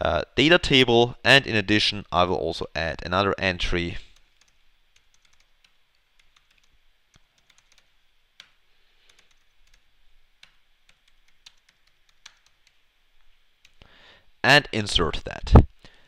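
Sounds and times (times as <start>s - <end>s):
keyboard keystroke clicks: 10.4s - 12.8s.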